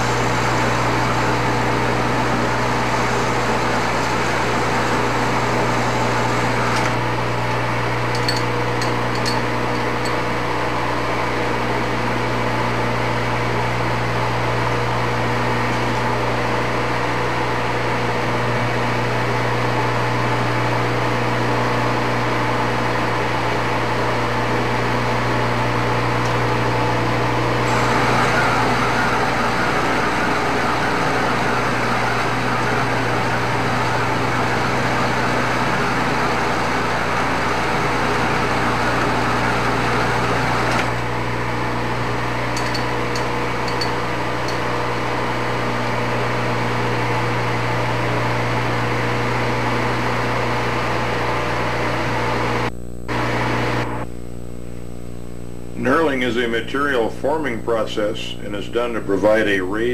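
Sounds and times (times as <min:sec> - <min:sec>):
metal lathe humming: 0:00.0 - 0:54.0
tool cutting metal: 0:27.6 - 0:33.2.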